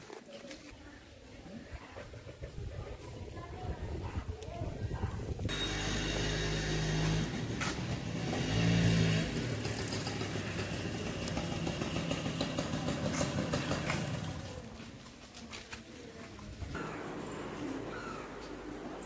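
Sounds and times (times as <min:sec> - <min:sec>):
motorcycle engine running: 0:05.5 - 0:14.9.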